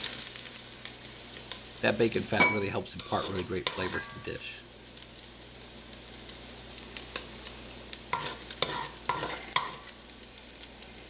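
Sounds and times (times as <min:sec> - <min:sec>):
fat sizzling and crackling: 0:00.0 - 0:11.0
spoon scraping a pot: 0:08.1 - 0:09.8.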